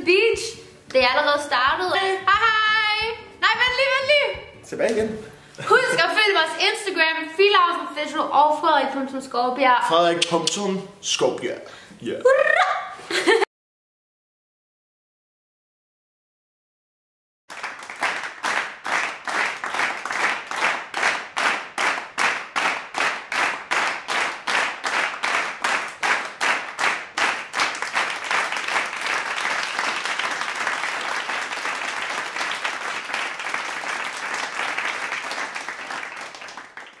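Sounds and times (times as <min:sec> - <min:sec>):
applause: 0:17.5 - 0:37.0
audience clapping in unison: 0:17.5 - 0:37.0.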